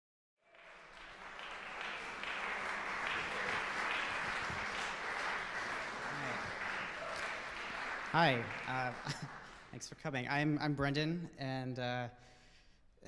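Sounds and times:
audience applauding: 0:00.4 - 0:10.1.

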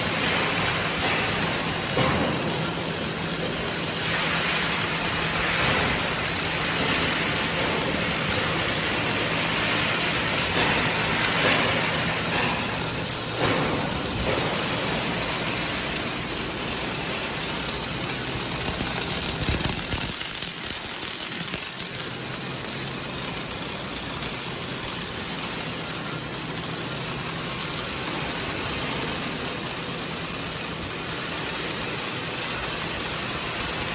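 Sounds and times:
welding arcs hissing: 0:00.0 - 0:33.9.

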